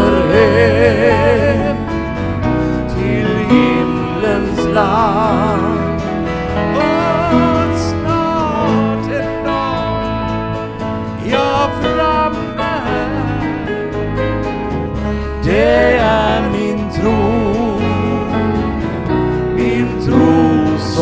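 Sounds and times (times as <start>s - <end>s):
acoustic guitar: 0.0s - 21.0s
bass: 0.0s - 21.0s
pedal steel guitar: 0.0s - 21.0s
piano: 0.0s - 21.0s.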